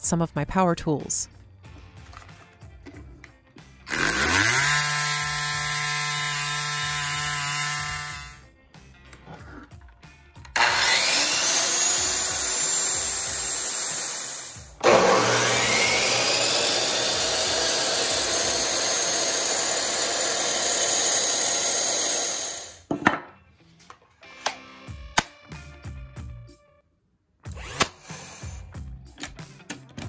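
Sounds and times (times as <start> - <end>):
circular saw whining: 3.9 - 8.4, 10.6 - 22.9
miter saw whining: 3.9 - 8.4, 10.6 - 22.9
wood block knocking on workbench: 22.9 - 23.4.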